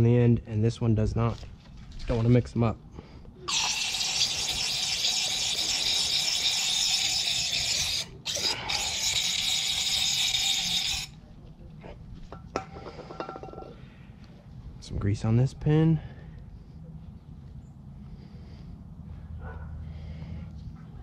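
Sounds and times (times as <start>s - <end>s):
aerosol spray hissing: 3.5s - 11.1s.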